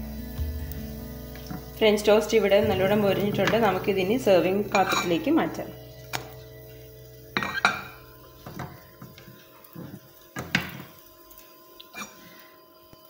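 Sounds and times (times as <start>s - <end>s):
spatula scraping a pan: 4.7s - 5.3s.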